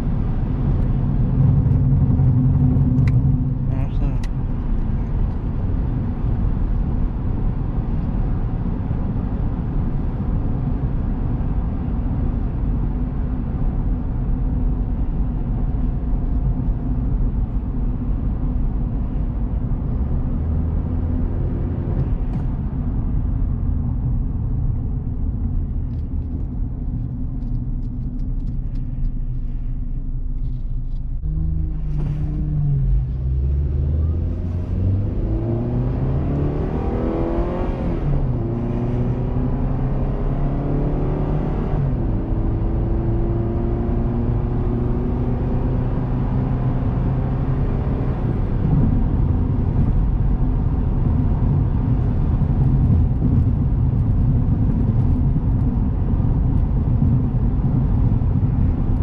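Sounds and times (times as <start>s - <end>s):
low road rumble: 0.0s - 59.0s
car engine accelerating: 18.2s - 59.0s.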